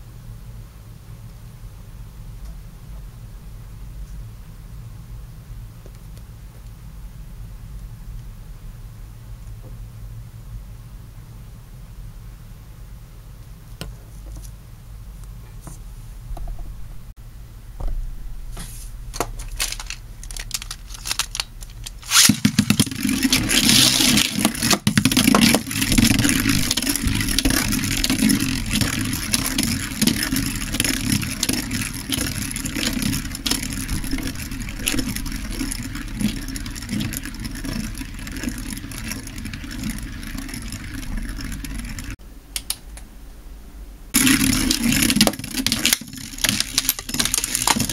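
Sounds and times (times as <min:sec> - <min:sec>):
spinning top launch burst: 0:18.0 - 0:36.3
spinning top rattling scrape: 0:18.5 - 0:42.2, 0:44.2 - 0:47.9.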